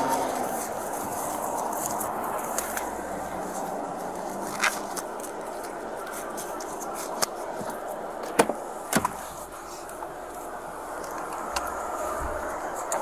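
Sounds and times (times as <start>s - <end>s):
clicks and knocks of handled items: 0.0s - 10.4s
road and vehicle noise: 0.0s - 13.0s.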